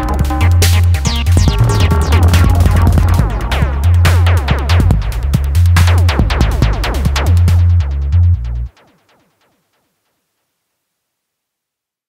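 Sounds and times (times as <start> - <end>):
electronic music with bass beat: 0.0 - 8.8.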